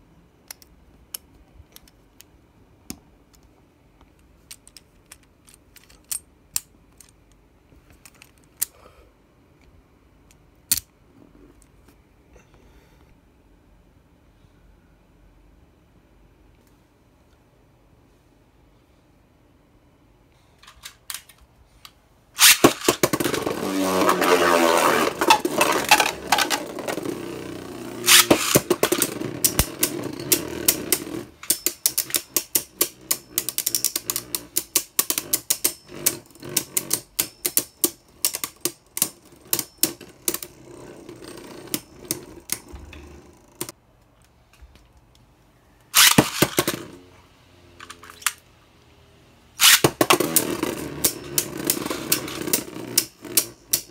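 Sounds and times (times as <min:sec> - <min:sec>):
spinning top launch rip and whir: 0:22.4 - 0:31.4, 0:46.0 - 0:47.1, 0:49.6 - 0:53.5
spinning tops clashing and rattling: 0:22.4 - 0:38.7, 0:46.0 - 0:46.9.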